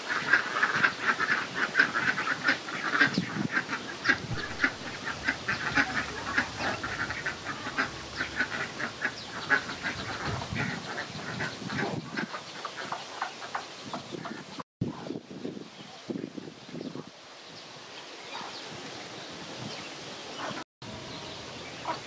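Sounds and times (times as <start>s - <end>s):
ducks quacking: 0.0s - 14.6s, 20.4s - 22.0s.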